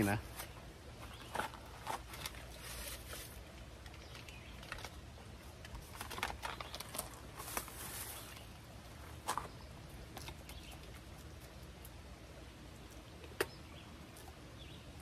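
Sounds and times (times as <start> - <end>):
paper packet crinkling: 5.7 - 8.4.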